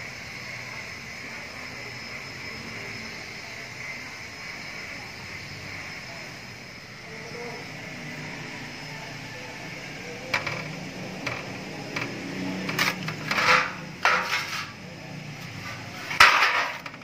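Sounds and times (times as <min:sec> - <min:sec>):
metal clattering in drain pan: 0:12.7 - 0:14.7, 0:16.0 - 0:17.0.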